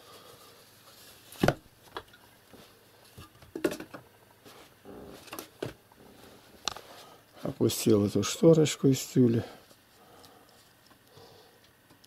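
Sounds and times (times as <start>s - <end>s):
objects knocking and clicking: 3.2s - 4.1s.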